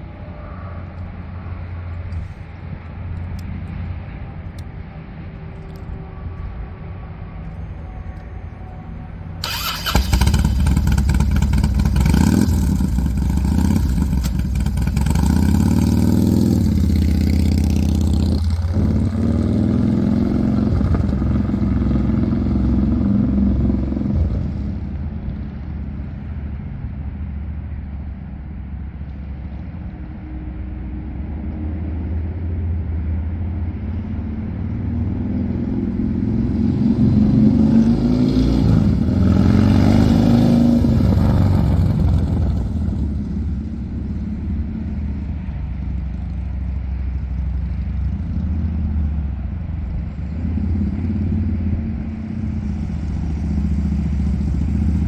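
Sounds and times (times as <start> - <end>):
motorcycle engine revving: 9.4 - 24.8, 35.4 - 45.2.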